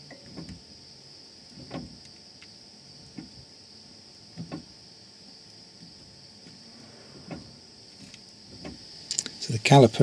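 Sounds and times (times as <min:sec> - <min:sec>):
faint mechanical knocks: 0:00.0 - 0:00.7, 0:01.5 - 0:02.2, 0:03.0 - 0:03.5, 0:04.3 - 0:04.8, 0:05.8 - 0:08.9
crickets chirring: 0:00.0 - 0:10.0.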